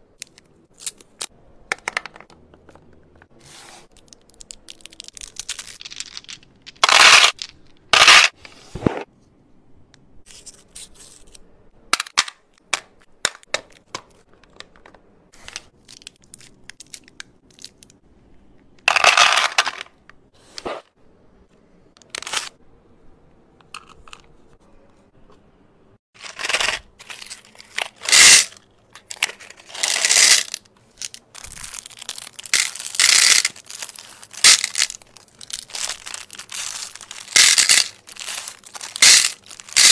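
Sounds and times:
candy wrappers crinkling: 3.8s - 8.3s, 26.2s - 39.9s
candies dropping into plastic tray: 4.0s - 8.3s, 26.2s - 39.9s.

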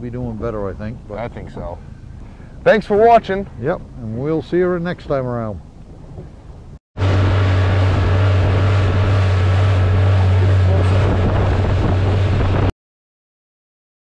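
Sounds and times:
water rushing along hull: 0.0s - 12.7s
outboard motor running: 0.3s - 4.1s, 7.0s - 12.7s
wind on microphone: 5.5s - 12.7s.

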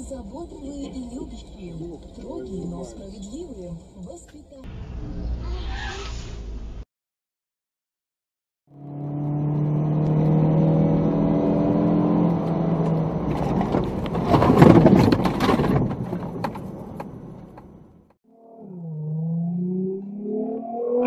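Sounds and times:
vehicle engine drone: 4.7s - 6.8s, 8.7s - 14.4s, 16.0s - 21.0s.

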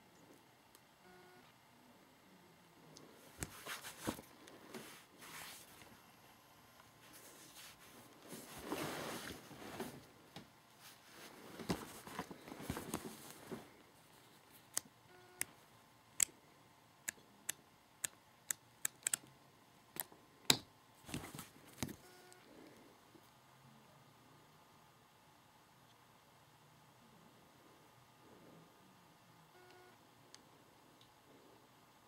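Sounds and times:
plastic and cardboard rustling: 7.0s - 10.2s, 10.8s - 14.5s.

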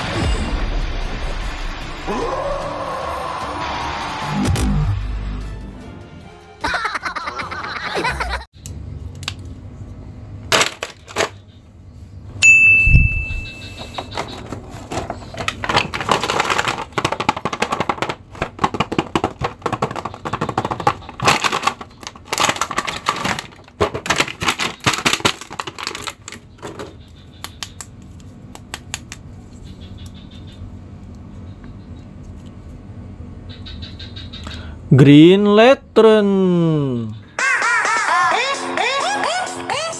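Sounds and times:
short high tone: 12.4s - 13.9s
packaging crinkling: 14.3s - 26.5s.

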